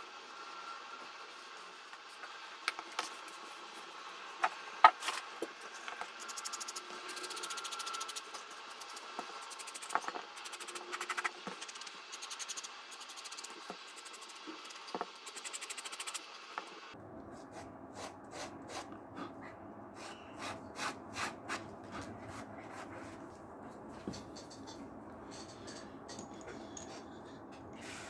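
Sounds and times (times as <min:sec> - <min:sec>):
sandpaper rubbing leather: 0:06.1 - 0:16.2.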